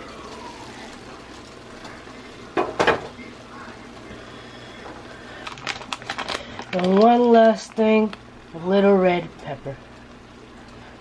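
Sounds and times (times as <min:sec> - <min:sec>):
stir-fry hissing in skillet: 0:00.0 - 0:05.6.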